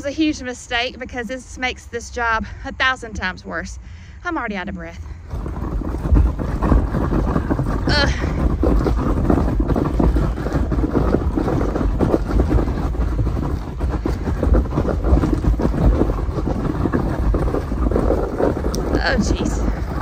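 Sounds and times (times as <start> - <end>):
trash can rattling over gravel: 5.0 - 20.0.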